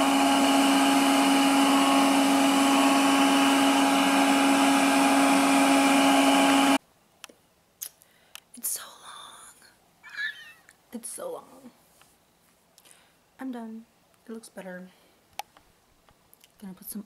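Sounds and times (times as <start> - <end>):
hair dryer blowing air: 0.0 - 6.8.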